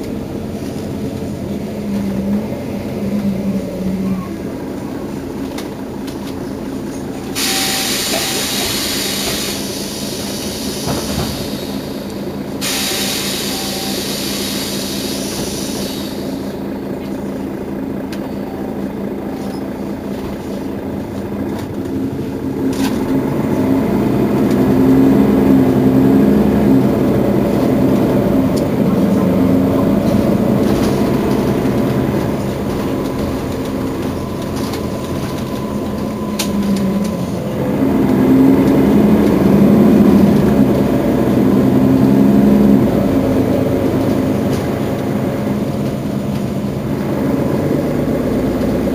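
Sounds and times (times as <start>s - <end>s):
bus engine pulling away: 0.0s - 48.9s
air hissing: 7.3s - 16.6s.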